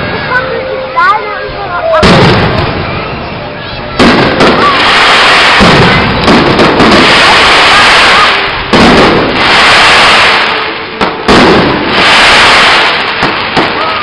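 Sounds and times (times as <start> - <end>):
firework crackling: 1.9 - 14.0
firework shells bursting: 4.0 - 14.0.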